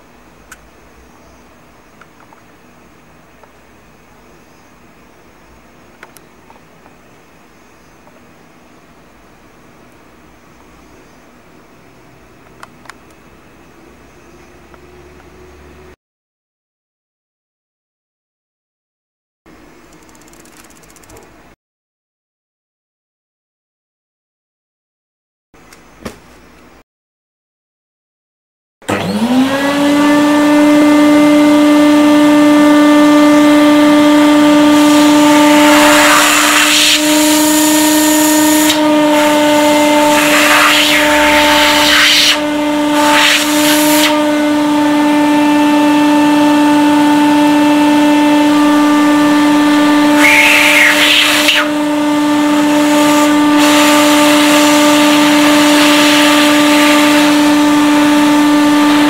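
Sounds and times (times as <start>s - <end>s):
vacuum cleaner motor whine: 28.8s - 59.0s
vacuum air rushing: 40.0s - 44.1s.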